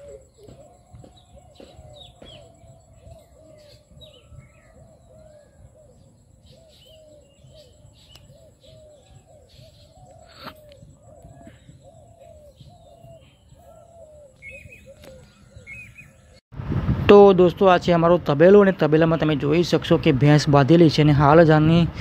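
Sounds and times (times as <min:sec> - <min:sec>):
higher bird chirps: 0:00.0 - 0:16.4.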